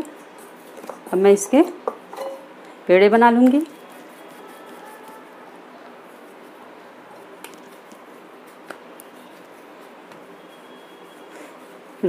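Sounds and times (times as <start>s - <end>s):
hands spreading flour hiss: 3.6s - 12.0s.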